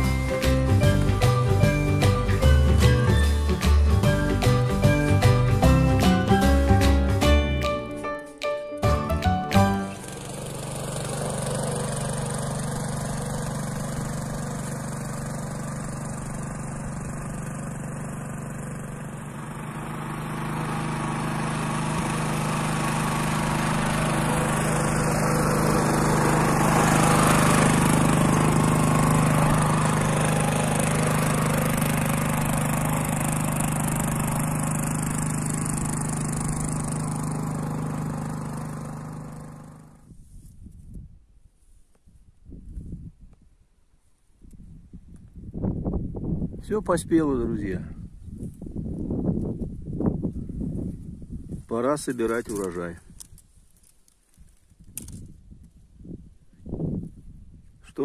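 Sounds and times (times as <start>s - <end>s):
small petrol engine tilling soil: 0.0s - 8.1s, 8.8s - 40.4s, 51.6s - 55.4s.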